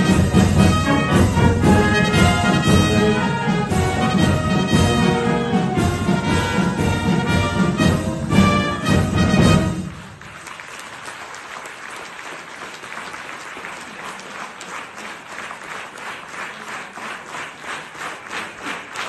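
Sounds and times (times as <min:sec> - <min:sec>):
rhythmic clapping in unison: 0:00.0 - 0:19.0
audience applauding: 0:08.8 - 0:19.0.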